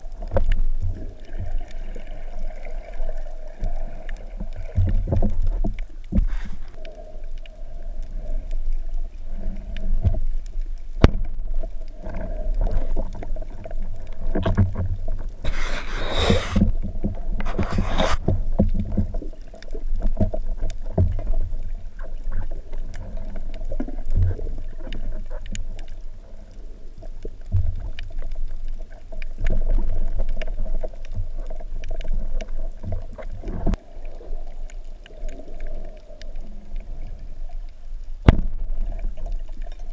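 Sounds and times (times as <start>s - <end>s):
underwater rumble of moving water: 0.0s - 39.9s
rushing hiss bursts: 15.5s - 16.6s.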